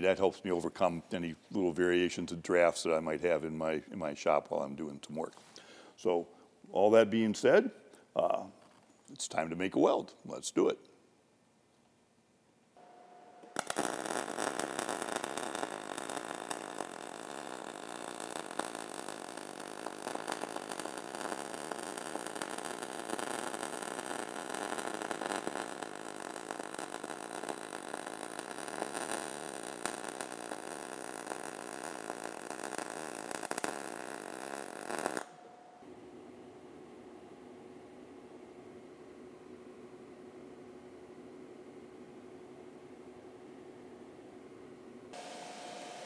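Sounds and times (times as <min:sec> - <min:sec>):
welding arc crackling sizzle: 0:12.8 - 0:35.9, 0:45.1 - 0:46.0.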